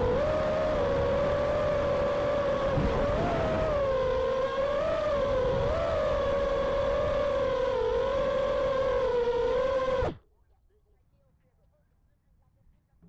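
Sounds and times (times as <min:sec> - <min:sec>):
quadcopter motors whining: 0:00.0 - 0:10.2
wind noise: 0:00.0 - 0:10.2.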